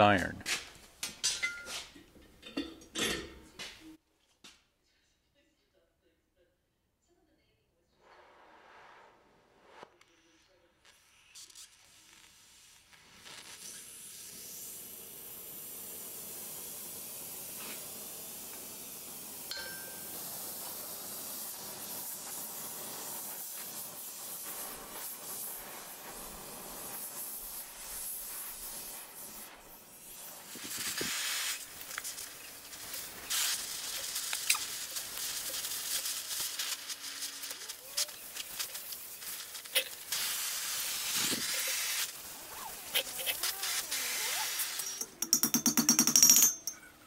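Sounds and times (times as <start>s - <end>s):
gas torch flame hissing: 8.0s - 45.0s
hot iron crackling and popping: 10.8s - 45.3s.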